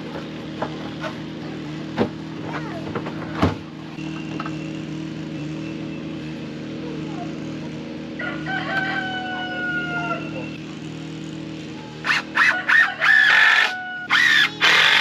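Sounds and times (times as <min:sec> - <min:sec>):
rooster crowing: 0:08.2 - 0:10.5, 0:12.4 - 0:14.3.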